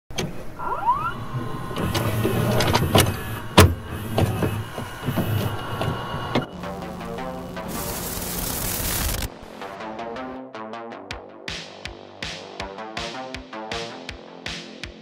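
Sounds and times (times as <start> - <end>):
motor-like whir rising in pitch: 0.4 - 9.3
clicks and glitchy crackles: 6.8 - 9.3.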